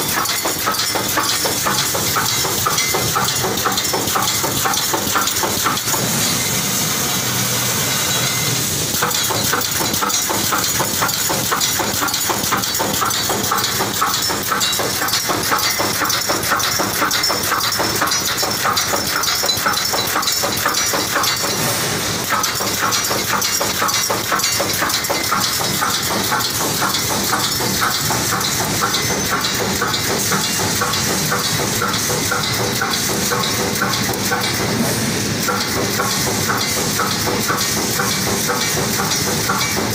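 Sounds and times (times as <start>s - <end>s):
welding machine clattering: 0.0s - 39.9s
compressed air hiss: 21.6s - 22.2s.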